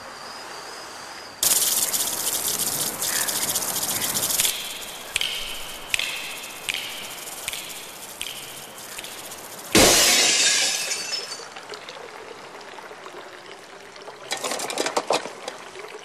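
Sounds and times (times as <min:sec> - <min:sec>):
insects chirring: 0:00.0 - 0:11.5.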